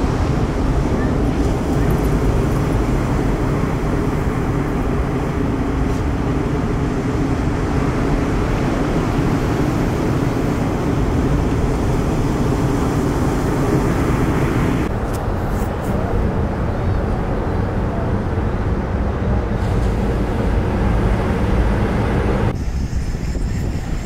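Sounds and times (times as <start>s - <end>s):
heavy surf breaking: 0.0s - 16.6s.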